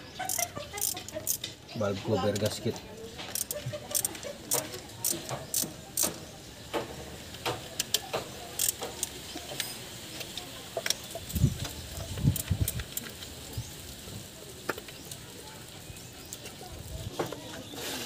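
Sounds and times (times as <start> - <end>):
hand tool clicking on metal: 3.3 - 6.2, 7.5 - 9.7.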